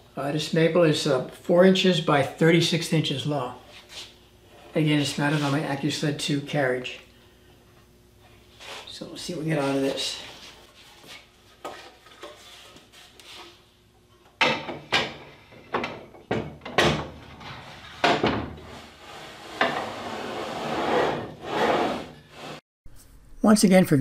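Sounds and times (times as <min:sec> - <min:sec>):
scraping slide on metal rail: 0:18.6 - 0:22.6.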